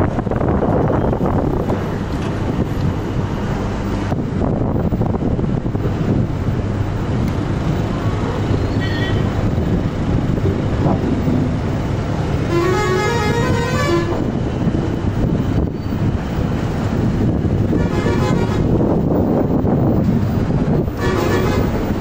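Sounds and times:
tractor diesel engine rumbling: 0:00.0 - 0:22.0
rising horn-like tune: 0:12.4 - 0:14.3.

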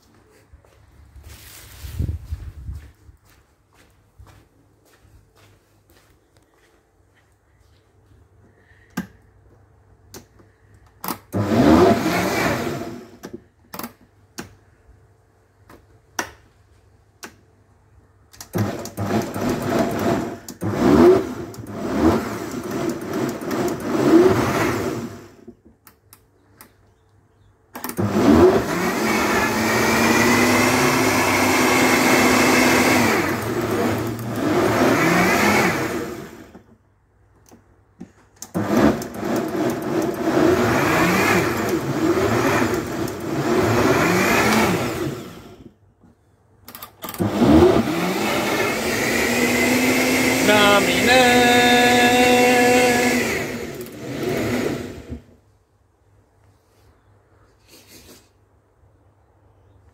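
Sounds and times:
blender motor whining: 0:11.1 - 0:13.2, 0:18.5 - 0:25.4, 0:27.9 - 0:36.6, 0:38.5 - 0:45.7, 0:47.1 - 0:55.3.

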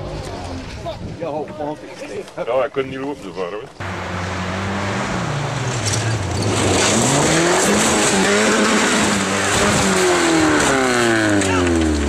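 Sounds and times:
rally car engine revving: 0:03.8 - 0:12.0.

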